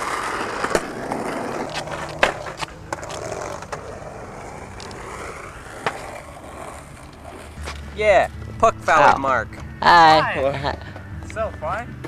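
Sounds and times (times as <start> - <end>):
skateboard clacks: 0.0 - 8.5
skateboard wheels on rough asphalt: 0.0 - 9.7.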